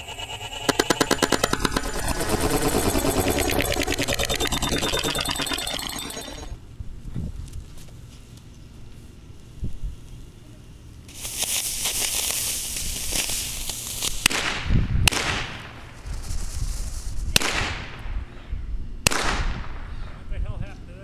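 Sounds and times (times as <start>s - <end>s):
sharp bangs: 0.0s - 6.6s
firework rocket motor hissing: 11.1s - 14.3s.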